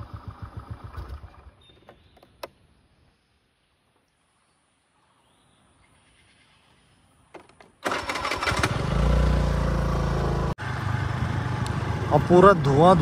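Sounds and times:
engine running loud: 0:07.9 - 0:13.0.

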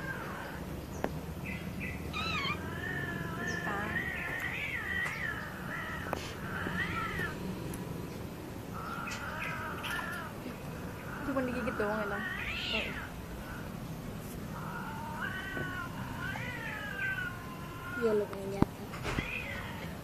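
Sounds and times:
cat yowling: 0:02.1 - 0:07.4, 0:09.0 - 0:10.4, 0:11.2 - 0:13.7, 0:14.6 - 0:18.3, 0:19.1 - 0:20.0.

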